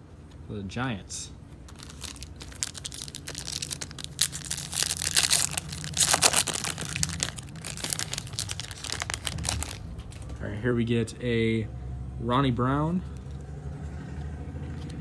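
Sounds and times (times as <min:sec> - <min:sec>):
foil wrapper crinkling: 0:01.6 - 0:10.4.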